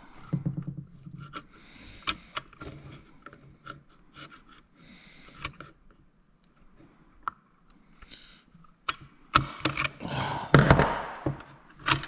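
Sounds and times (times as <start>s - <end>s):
small clicks and knocks: 0.1s - 10.0s, 10.6s - 12.0s
pliers scraping in plastic housing: 0.3s - 4.7s.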